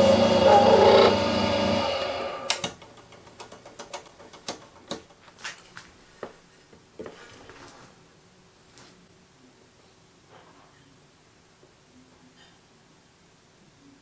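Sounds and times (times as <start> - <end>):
lathe motor winding down: 0.0 - 2.8
metallic clicks and taps: 2.5 - 5.2.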